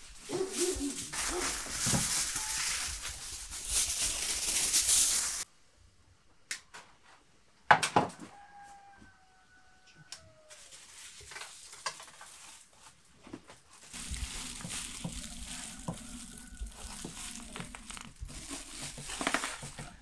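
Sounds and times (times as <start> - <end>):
aluminium foil crinkling: 0.0 - 5.5, 10.5 - 20.0.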